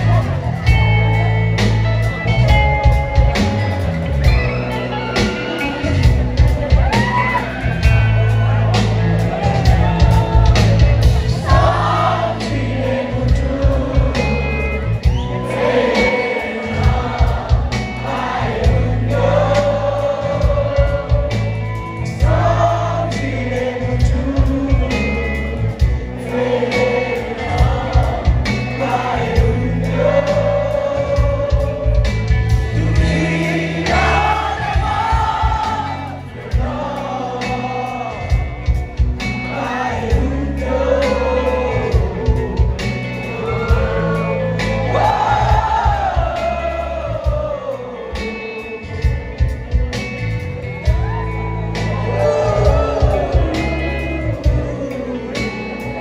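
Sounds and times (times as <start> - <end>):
live band with singing: 0.0 - 56.0.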